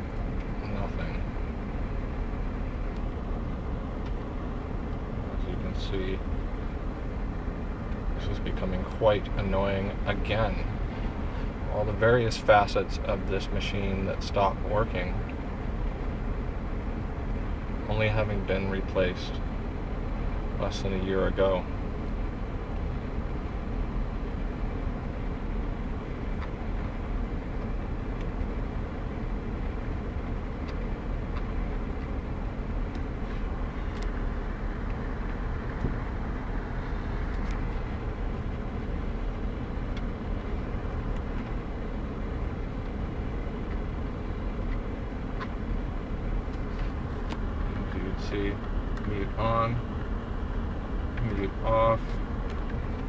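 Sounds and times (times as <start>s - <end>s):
car cabin engine hum: 0.0s - 53.0s.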